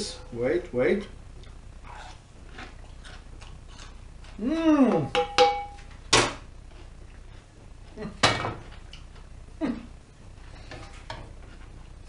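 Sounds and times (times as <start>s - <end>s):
metal cookware clanking: 5.1s - 5.8s.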